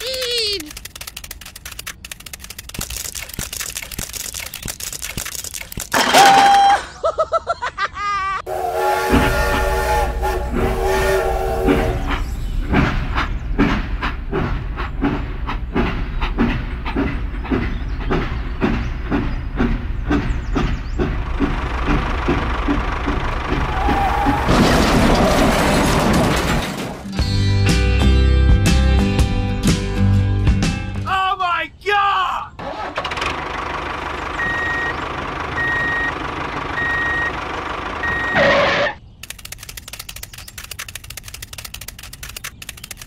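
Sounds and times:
toy train whistle: 8.5 - 12.2
train chugging clack: 8.5 - 24.0.

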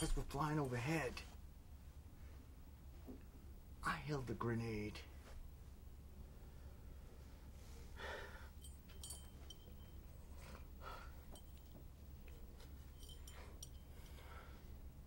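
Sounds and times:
low steady hum: 0.0 - 15.0
man breathing and sniffing: 6.4 - 9.0, 10.2 - 11.8, 12.4 - 15.0.

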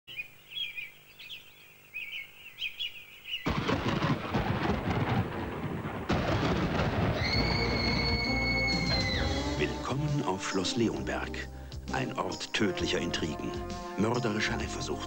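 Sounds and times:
birds chirping: 0.1 - 3.7, 6.9 - 12.9
loud rumbling crash: 3.5 - 9.5.

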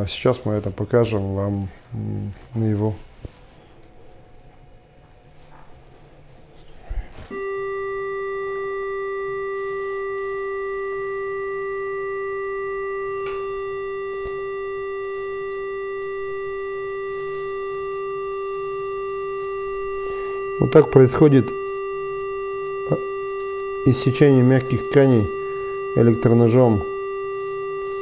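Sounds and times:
steady electronic tone: 7.3 - 28.0
click: 15.4 - 15.6.

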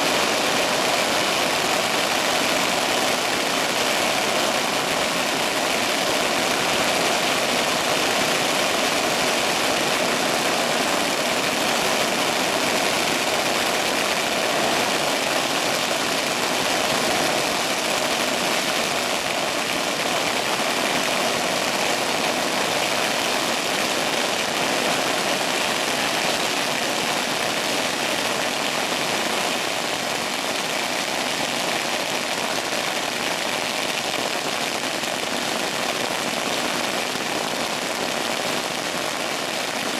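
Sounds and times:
firecrackers crackling: 0.0 - 39.9.

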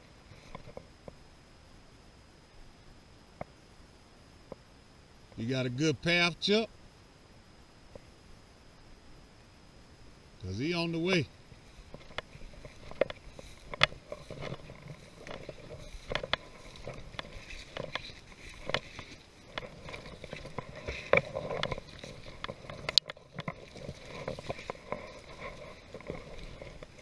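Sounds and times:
footsteps through dry grass: 11.5 - 27.0
stems brushing against clothing: 11.6 - 27.0.

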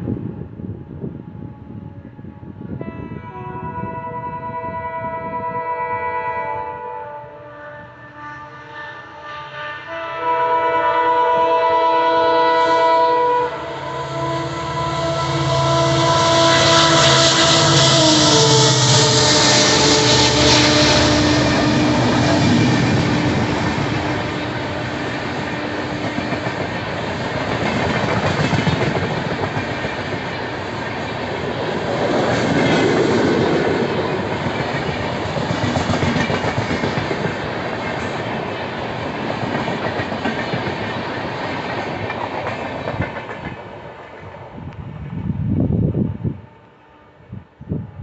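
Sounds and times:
diesel locomotive drone: 0.0 - 48.0
train coaches rushing past: 10.3 - 45.0.

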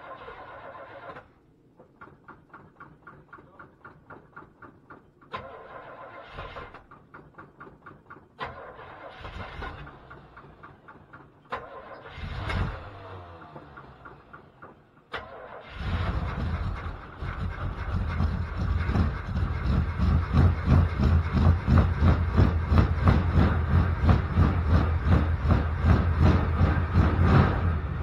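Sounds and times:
engine running unevenly: 6.6 - 28.0.

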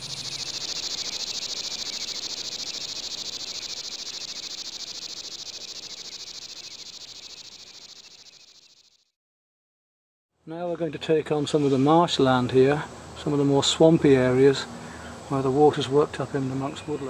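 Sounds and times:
insects buzzing: 0.0 - 9.1.

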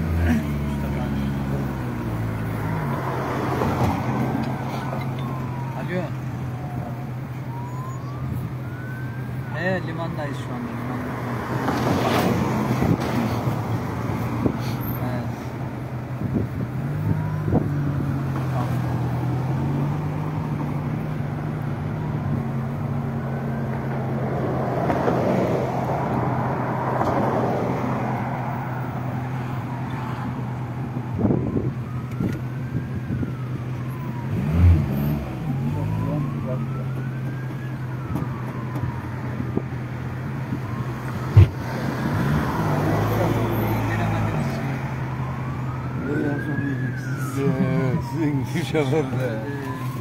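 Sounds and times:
car engine and road noise: 0.0 - 50.0
emergency vehicle siren wailing: 0.0 - 50.0.

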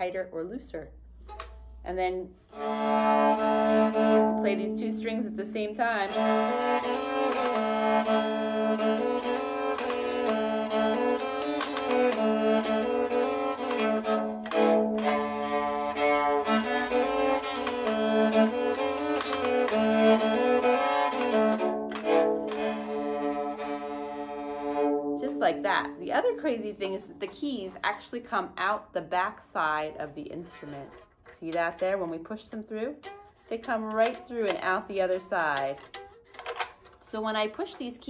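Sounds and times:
keyed fiddle tune over drone: 2.6 - 27.7.

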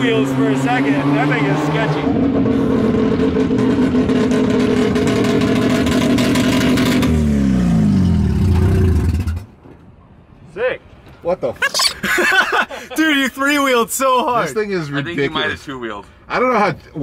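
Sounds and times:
rotary engine revving: 0.0 - 9.5.

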